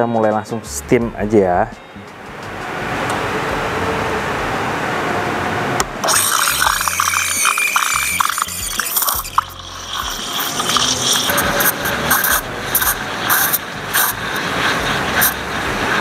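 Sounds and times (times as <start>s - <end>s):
background music: 0.0s - 4.6s
steam wand hissing in milk: 6.0s - 16.0s.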